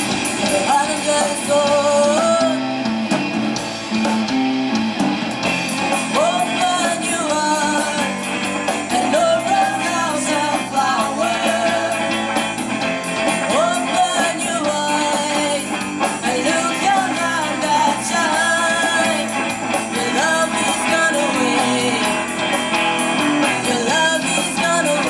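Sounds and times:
bass guitar: 0.0 - 25.0
drum kit beat: 0.0 - 25.0
electric guitar: 0.0 - 25.0
woman singing: 0.5 - 2.8, 6.1 - 12.3, 13.4 - 22.3, 23.4 - 25.0.

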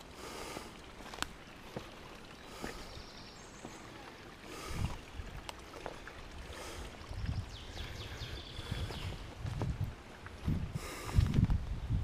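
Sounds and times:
footsteps on stony path: 0.5 - 6.2, 7.2 - 11.8.

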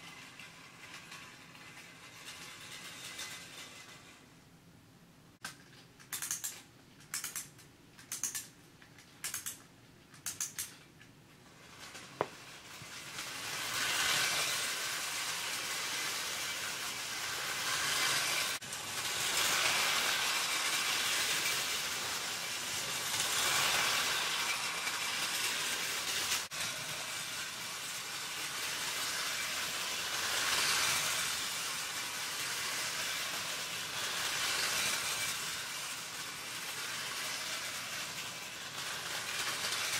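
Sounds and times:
toy train whirring and rattling: 0.0 - 4.5, 5.5 - 39.9
short bursts of clicking: 5.4 - 10.8.

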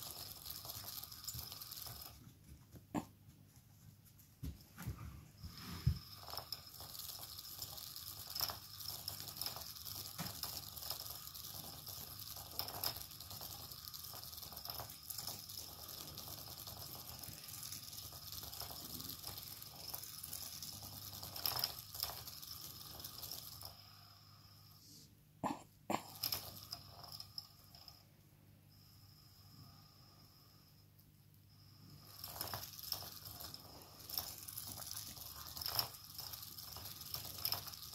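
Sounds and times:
toy motor whirring: 0.0 - 2.2, 5.4 - 23.9, 26.0 - 28.0, 31.9 - 37.9.

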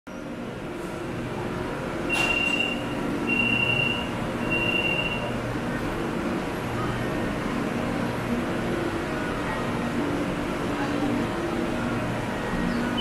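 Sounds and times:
train running hum: 0.1 - 13.0
high steady beeps: 2.1 - 5.3.

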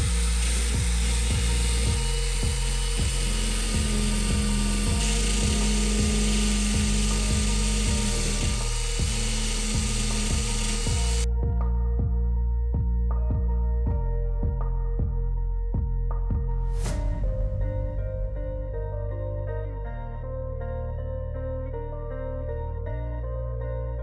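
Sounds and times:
welding arc crackling and hissing: 0.0 - 11.3
background music with steady beat: 0.0 - 24.0.

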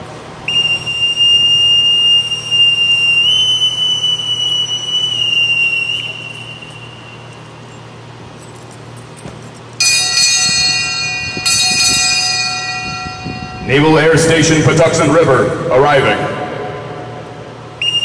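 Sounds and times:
boatswain's pipe whistle: 0.4 - 7.8, 17.8 - 18.0.

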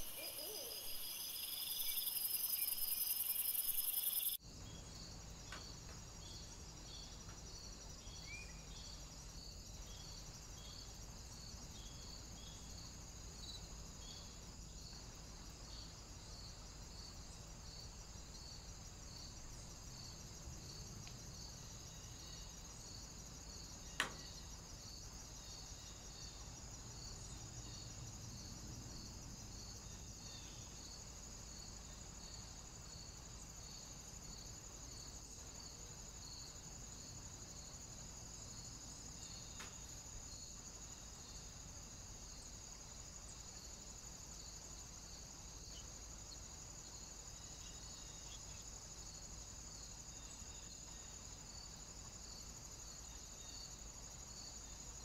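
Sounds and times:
high insect hiss: 0.0 - 55.0
insects chirping: 0.0 - 55.0.

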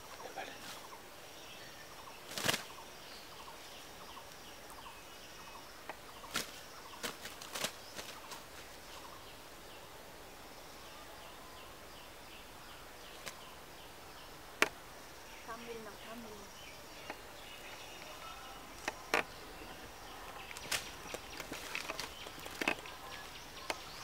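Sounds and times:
grass stems rustling and snapping: 2.3 - 2.7, 5.8 - 8.7, 17.0 - 24.0.

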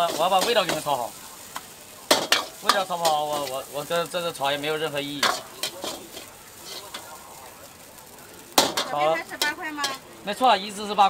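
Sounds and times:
spatula scraping in a wok: 0.0 - 7.3
faint sizzle: 0.0 - 11.0.

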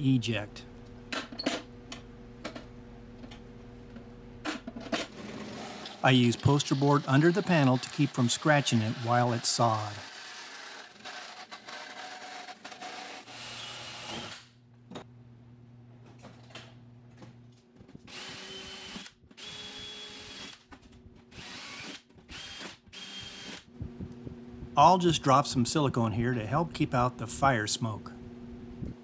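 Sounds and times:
bandsaw cutting metal sheet: 5.0 - 14.5
cordless drill whining: 18.1 - 20.6, 21.3 - 23.7.

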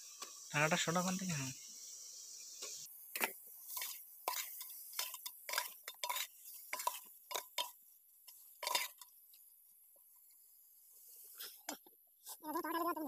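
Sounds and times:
metal spoon clinking in a pot: 3.2 - 9.1.

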